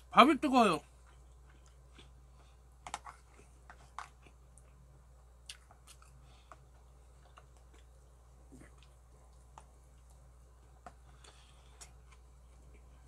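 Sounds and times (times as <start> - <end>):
low steady hum: 0.0 - 13.0
chewing smacks: 5.4 - 13.0.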